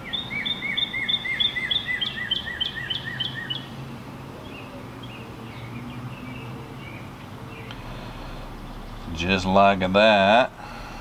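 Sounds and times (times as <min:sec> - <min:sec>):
songbird chirping: 0:00.0 - 0:09.9
low steady hum: 0:02.4 - 0:11.0.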